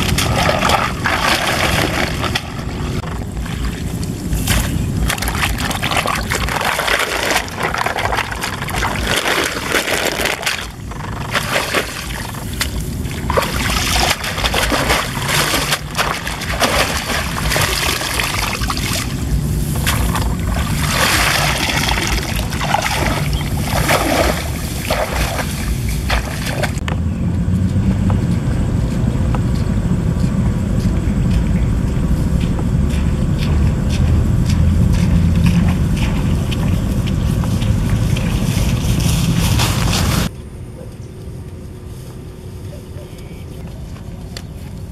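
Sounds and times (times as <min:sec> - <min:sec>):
rustling through wet grass: 0:00.0 - 0:26.8, 0:34.9 - 0:40.3
wind rumble on microphone: 0:00.0 - 0:44.9
hands splashing in shallow water: 0:04.4 - 0:26.8.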